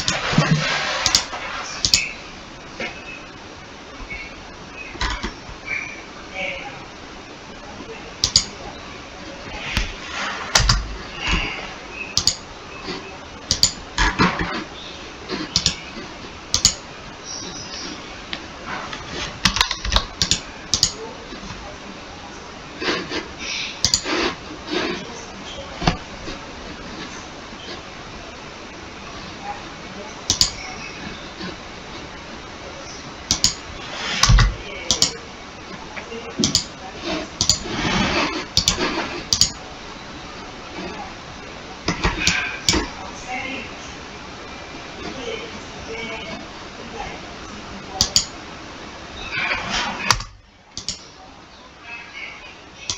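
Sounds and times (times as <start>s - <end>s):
mouse clicks: 1.1s - 2.1s, 8.2s - 8.6s, 12.1s - 12.4s, 13.5s - 13.8s, 15.5s - 15.8s, 16.5s - 16.8s, 19.5s - 21.0s, 30.3s - 30.7s, 33.3s - 33.6s, 37.4s - 37.6s, 38.6s - 39.6s, 48.0s - 48.4s, 50.1s - 51.1s
computer keyboard clicks: 8.2s - 8.5s, 12.2s - 12.4s, 13.5s - 13.8s, 15.6s - 15.8s, 16.5s - 16.8s, 19.5s - 21.0s, 30.3s - 30.6s, 33.3s - 33.6s, 37.4s - 37.6s, 38.6s - 39.6s, 48.0s - 48.3s, 50.8s - 51.0s.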